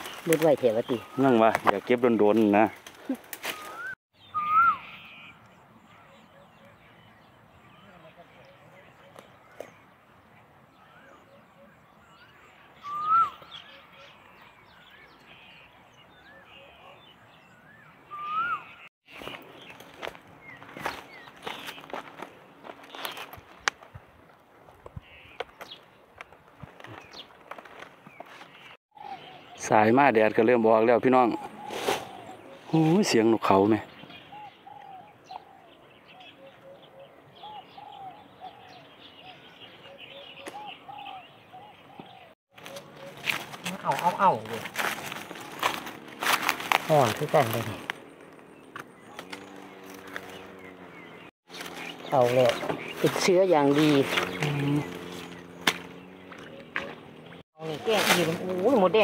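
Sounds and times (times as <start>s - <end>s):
footsteps crunching in dry grass: 0.0s - 4.0s, 19.0s - 28.8s, 42.5s - 59.0s
birds chirping: 0.0s - 59.0s
bird whistled call: 3.4s - 5.4s, 10.8s - 15.5s, 16.1s - 18.9s
doves cooing: 15.3s - 18.9s, 26.6s - 29.8s, 31.1s - 59.0s.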